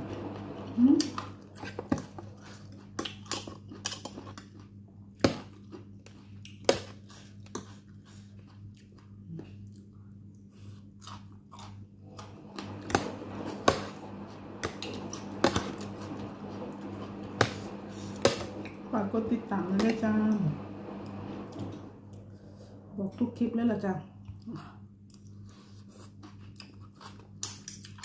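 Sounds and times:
chewing and crunching food: 0:01.0 - 0:12.4, 0:24.2 - 0:28.0.

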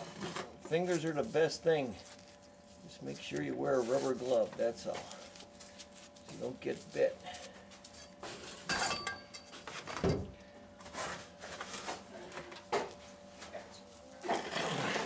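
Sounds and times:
fingers scraping mortar: 0:14.3 - 0:15.0.

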